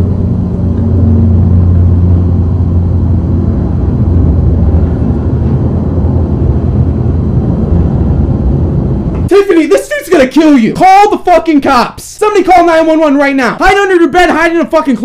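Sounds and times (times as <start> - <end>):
deep hum: 0.0 - 9.4
loud low rumble: 0.0 - 10.7.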